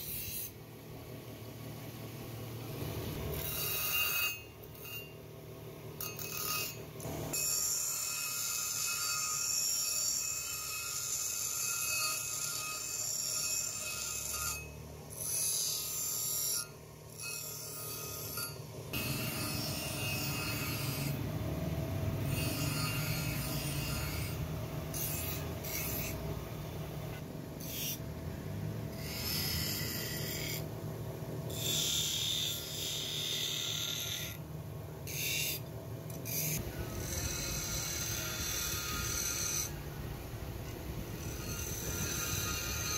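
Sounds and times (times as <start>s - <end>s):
knife blade on grinding wheel: 0.0s - 0.6s, 3.3s - 5.2s, 6.0s - 26.4s, 27.1s - 28.0s, 28.9s - 30.7s, 31.5s - 34.4s, 35.0s - 39.9s, 40.6s - 42.9s
grinder humming: 6.0s - 28.1s, 31.4s - 34.4s, 35.0s - 42.9s.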